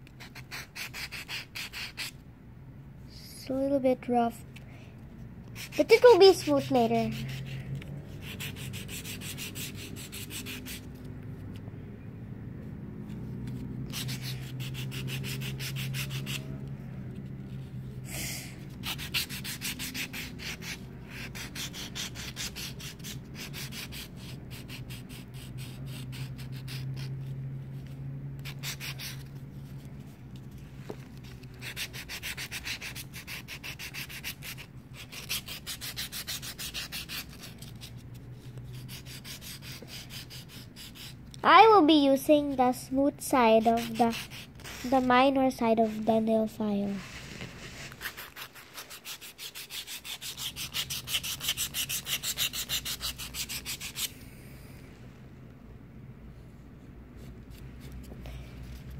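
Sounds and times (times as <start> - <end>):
nail file rubbing on foil: 0.2 - 2.2, 5.6 - 7.6, 18.8 - 27.2, 28.4 - 29.4, 31.2 - 38.1, 38.7 - 41.2, 43.6 - 45.1, 46.9 - 54.1.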